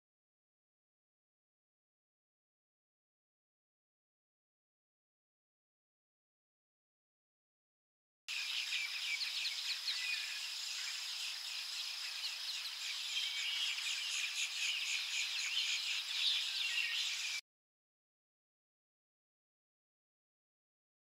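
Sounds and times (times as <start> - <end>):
high insect hum: 8.3 - 17.4
small birds chirping: 8.3 - 17.4.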